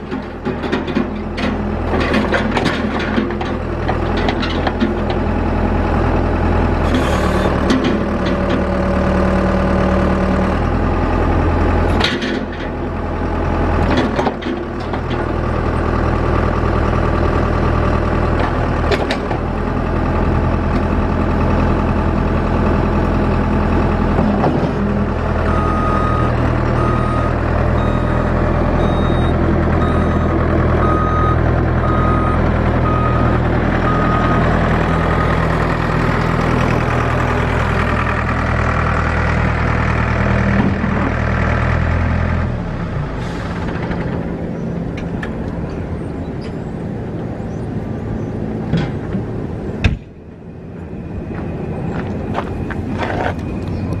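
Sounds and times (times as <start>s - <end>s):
diesel engine running: 0.0s - 54.0s
backup alarm beeping: 25.5s - 34.5s.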